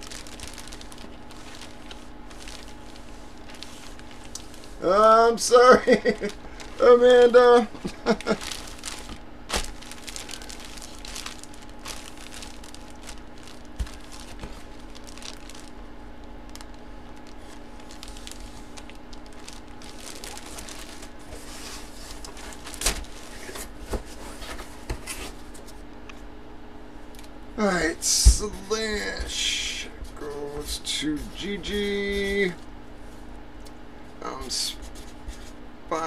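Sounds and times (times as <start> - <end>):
plastic bag crinkling: 0.0 - 24.5
steady low hum: 0.0 - 36.0.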